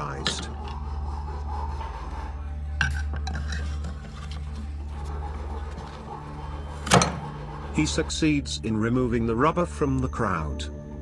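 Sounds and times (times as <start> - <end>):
knife scraping on metal: 0.2 - 8.2.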